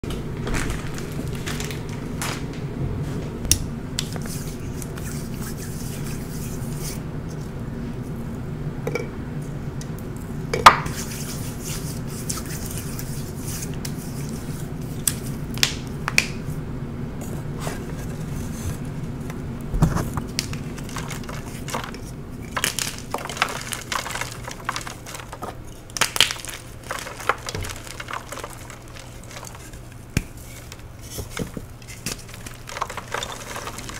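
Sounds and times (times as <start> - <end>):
steady low hum: 0.0 - 33.9
powdery blocks crunching and squishing: 0.4 - 2.5, 19.8 - 33.9.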